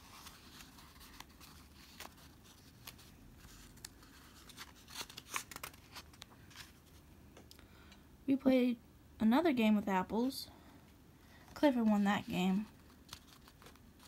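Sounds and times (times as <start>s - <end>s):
paper pages rustling: 0.0s - 7.0s, 11.5s - 14.0s.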